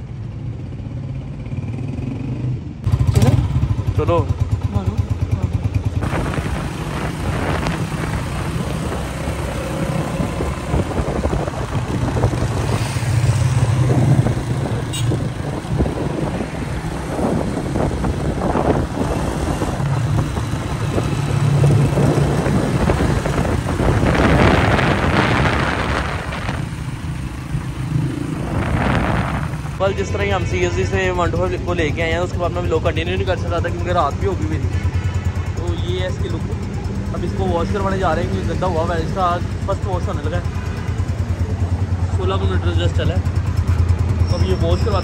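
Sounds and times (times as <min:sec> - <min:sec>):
motorcycle engine running: 0:00.1 - 0:45.0
wind rush on microphone: 0:06.0 - 0:29.9.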